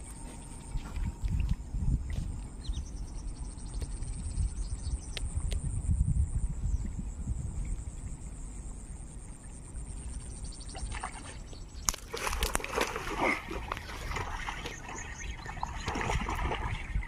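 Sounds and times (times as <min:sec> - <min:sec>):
fish thrashing water splashing: 0:11.9 - 0:17.0.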